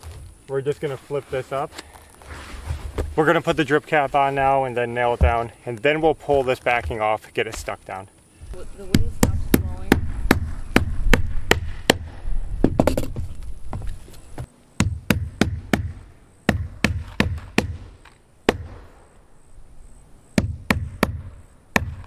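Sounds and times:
hammer striking nails: 14.8s - 17.9s, 20.4s - 22.0s.

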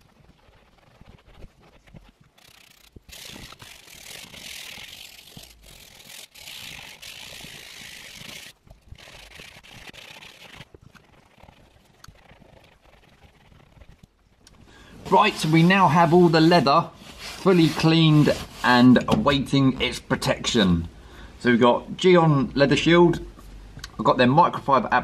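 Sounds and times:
cloth rubbing on leather seat: 0.0s - 14.0s, 15.0s - 20.0s.

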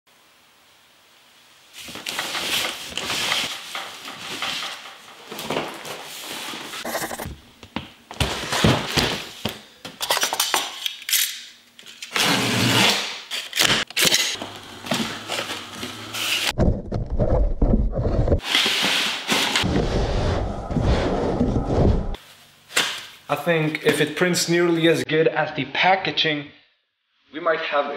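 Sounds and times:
cardboard scraping and rustling: 1.8s - 7.2s, 8.2s - 9.4s, 14.5s - 19.7s.

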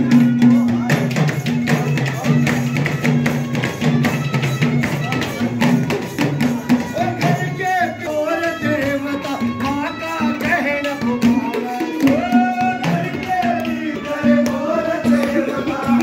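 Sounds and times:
clay pot percussion: 0.0s - 16.0s
hand drum: 0.0s - 16.0s
person singing: 6.9s - 16.0s
banjo melody: 13.1s - 16.0s.

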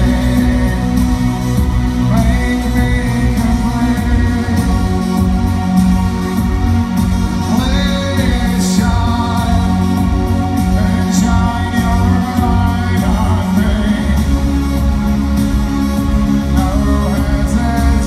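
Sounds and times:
man singing: 0.0s - 18.0s
synth-pop music: 0.0s - 18.0s.

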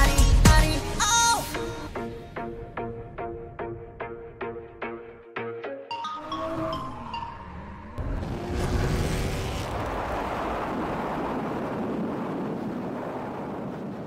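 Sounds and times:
loud rushing and rumbling noise: 7.9s - 14.0s.

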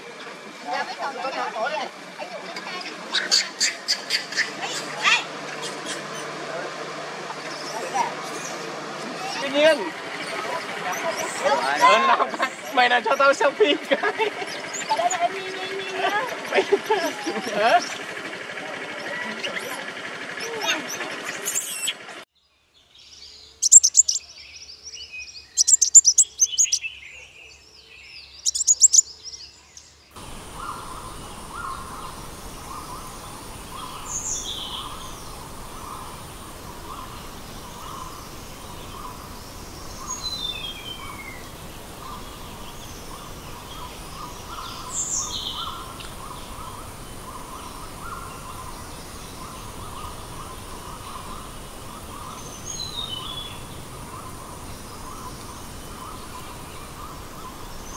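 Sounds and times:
birds chirping: 0.0s - 22.2s, 22.8s - 57.9s
loud shrill calls: 23.6s - 24.3s, 25.5s - 26.9s, 28.4s - 29.1s
pulsing insect drone: 30.2s - 57.9s
running water hiss: 30.2s - 57.9s.

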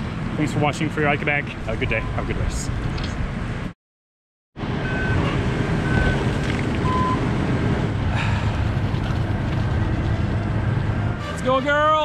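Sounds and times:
short electronic beeps: 4.8s - 6.2s.

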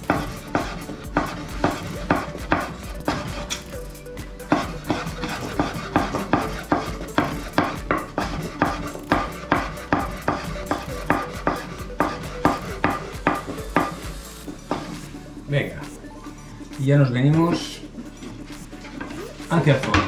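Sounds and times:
knife chopping on wooden board: 0.0s - 3.7s, 4.5s - 14.0s, 14.7s - 15.0s.

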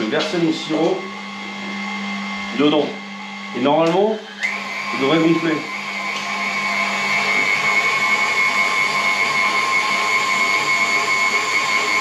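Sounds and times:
electric mixer whining: 0.0s - 12.0s.

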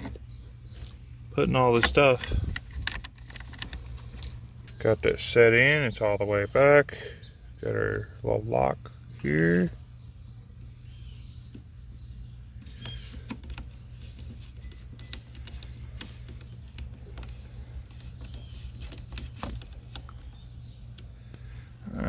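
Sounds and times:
steady low hum: 0.0s - 22.0s
small parts clicking and tapping: 1.7s - 4.8s, 12.6s - 21.5s.

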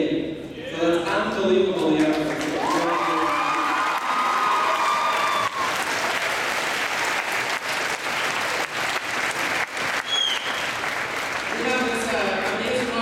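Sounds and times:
audience applauding: 2.1s - 13.0s
short high whistle: 10.0s - 10.7s.

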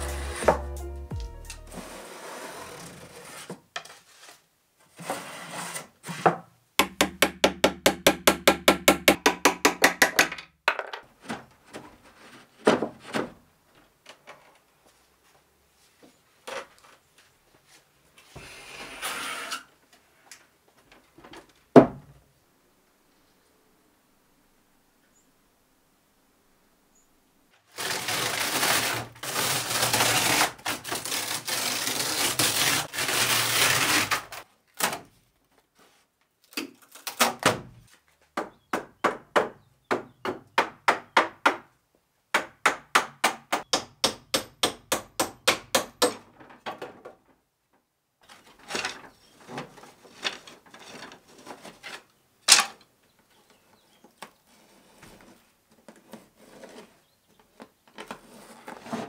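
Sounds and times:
hammer blows on wood: 0.0s - 1.8s
wood veneer tearing and crackling: 27.7s - 35.0s.

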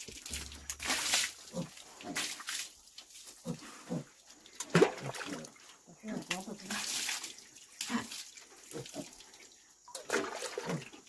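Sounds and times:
water splashing: 0.0s - 3.4s, 4.4s - 11.0s
pigs grunting: 3.4s - 4.2s.

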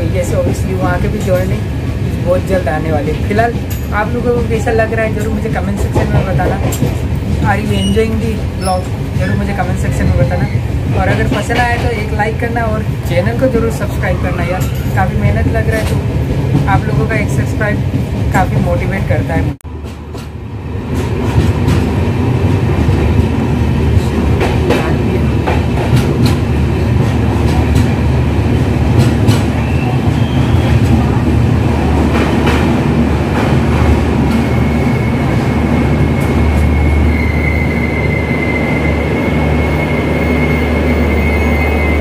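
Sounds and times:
train coach rumble: 0.0s - 42.0s
high brake squeal: 34.4s - 42.0s.

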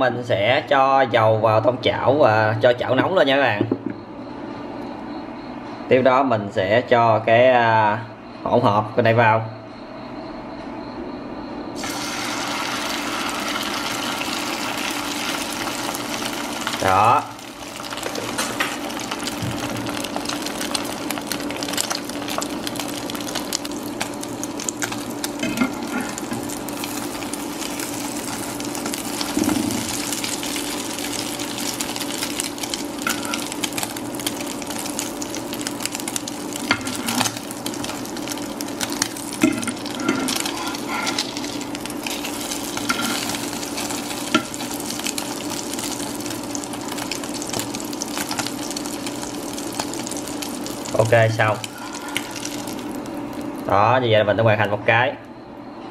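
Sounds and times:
patty sizzling in oil: 11.8s - 53.8s.

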